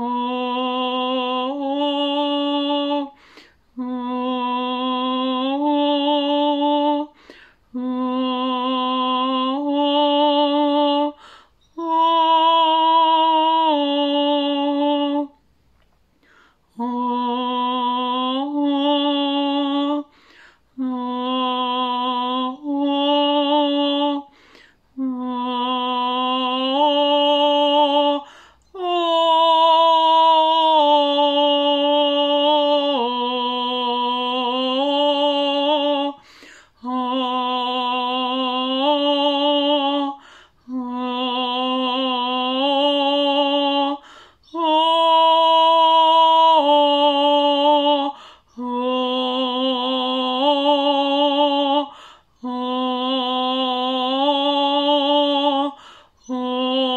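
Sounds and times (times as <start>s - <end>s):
woman singing wordless tones: 0.0s - 15.6s, 16.6s - 56.9s
woman breathing: 3.1s - 3.8s, 7.1s - 7.8s, 11.2s - 11.7s, 16.1s - 16.8s, 20.1s - 20.8s, 24.3s - 25.0s, 28.2s - 28.7s, 36.2s - 36.8s, 40.2s - 40.7s, 44.0s - 44.5s, 48.1s - 48.6s, 51.9s - 52.4s, 55.7s - 56.3s.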